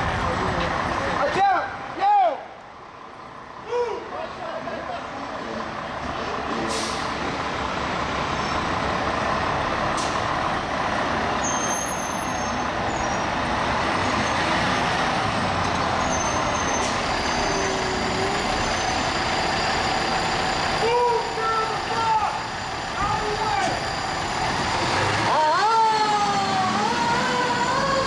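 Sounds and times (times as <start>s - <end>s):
fire engine diesel engine: 0.0s - 28.0s
air brakes hissing: 6.6s - 7.2s.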